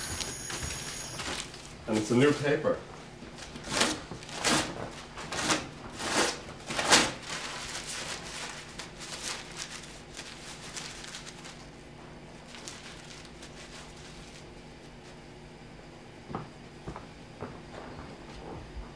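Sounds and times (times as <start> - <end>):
paper rustling: 3.4 - 15.2.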